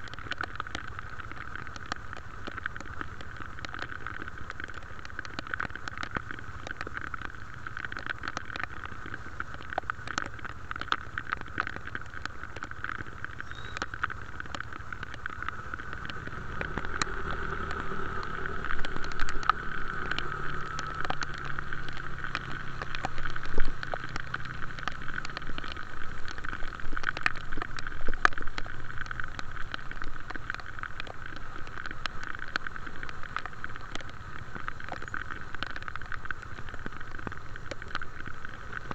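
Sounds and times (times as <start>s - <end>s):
road and wind noise: 0.0s - 38.9s
sharp ticks: 0.1s - 38.9s
engine rumble: 12.9s - 27.8s.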